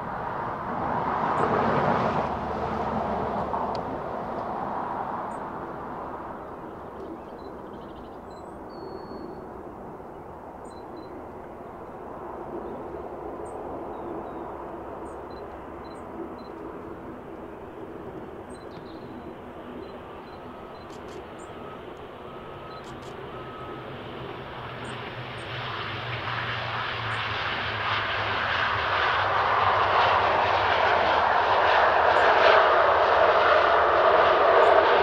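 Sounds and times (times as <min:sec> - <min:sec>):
airplane engine noise: 0:00.0 - 0:35.0
distant airport rumble: 0:00.0 - 0:35.0
small birds chirping: 0:18.5 - 0:21.6.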